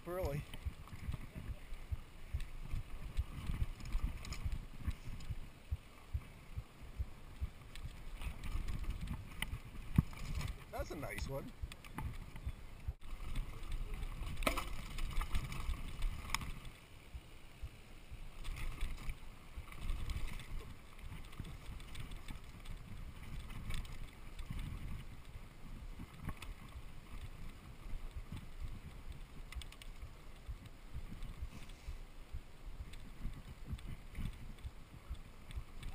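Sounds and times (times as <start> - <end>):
bike rattling over roots: 0.0 - 5.5, 7.0 - 16.9, 18.3 - 31.8
bike rumbling over dirt trail: 0.0 - 11.0, 11.6 - 16.8, 18.3 - 35.9.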